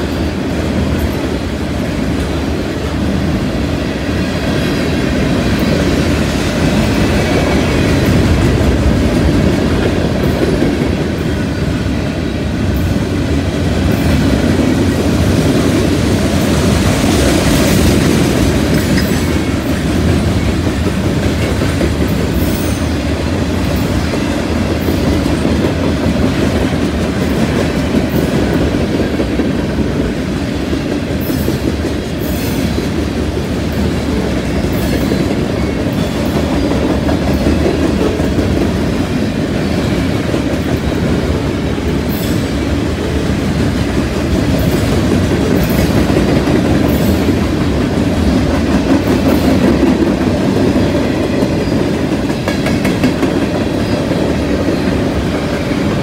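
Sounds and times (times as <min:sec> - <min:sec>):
steel wheels rumbling on rail: 0:00.0 - 0:56.0
wheels clacking over rail joints: 0:12.6 - 0:56.0.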